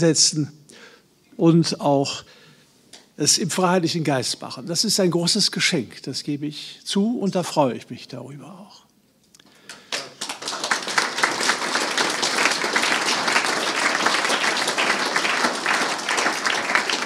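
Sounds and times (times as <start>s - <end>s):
audience applauding: 9.7s - 17.0s.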